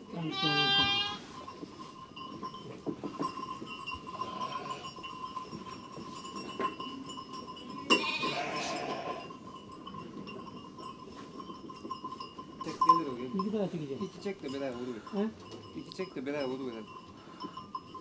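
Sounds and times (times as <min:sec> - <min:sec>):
sheep bleating: 0:00.2 - 0:01.2, 0:04.2 - 0:04.9, 0:07.9 - 0:09.3.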